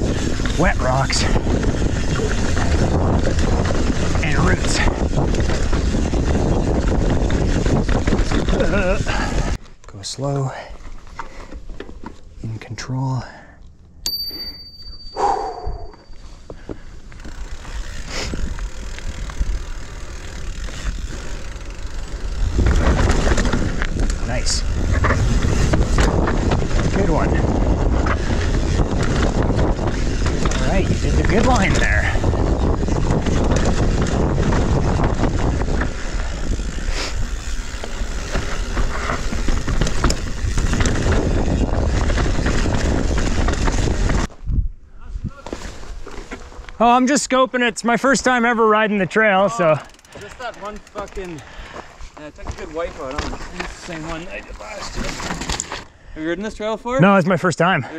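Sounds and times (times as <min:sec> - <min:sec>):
wind noise: 0:00.0 - 0:09.6, 0:15.2 - 0:46.7
bike tyres rolling over rocks: 0:00.0 - 0:09.7, 0:16.3 - 0:44.4, 0:49.1 - 0:55.9
bike rattling and clicking: 0:00.0 - 0:12.4, 0:13.7 - 0:44.5, 0:45.5 - 0:57.2.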